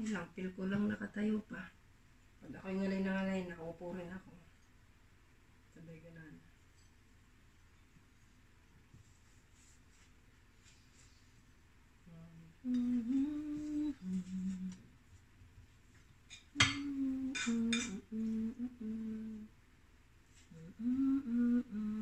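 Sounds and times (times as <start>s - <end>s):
woman humming a tune: 12.0s - 14.8s, 16.6s - 19.5s, 20.5s - 22.0s.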